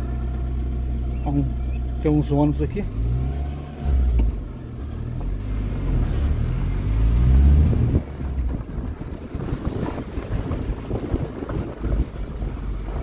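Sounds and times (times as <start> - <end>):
car driving on dirt road: 0.0 - 13.0
car engine accelerating: 0.0 - 13.0
wind rumbling on microphone: 3.8 - 13.0.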